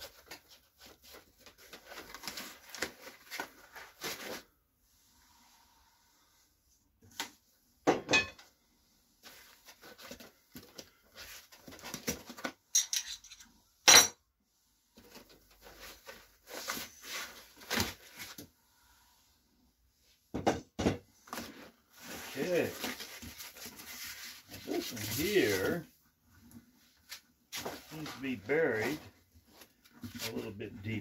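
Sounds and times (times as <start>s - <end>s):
cardboard and foam rustling: 0.0s - 5.2s, 9.1s - 12.7s, 14.8s - 18.7s, 21.1s - 31.0s.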